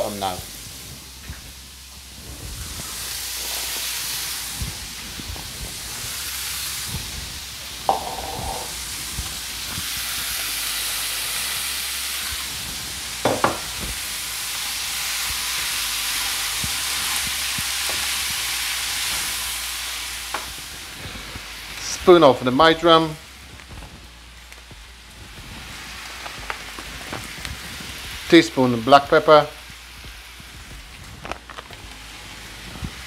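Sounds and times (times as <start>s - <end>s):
meat sizzling in a frying pan: 0.0s - 33.0s
sharp knock: 7.9s - 8.8s.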